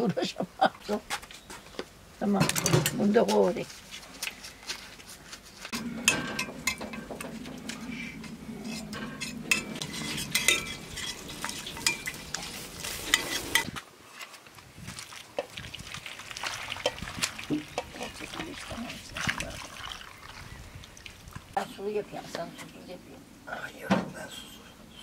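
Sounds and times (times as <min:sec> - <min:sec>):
pan clanks: 0:05.8 - 0:13.7
metal spoon scraping saucepan: 0:05.8 - 0:13.8
sizzling hiss: 0:09.8 - 0:13.8
water pouring from kettle: 0:14.9 - 0:21.4.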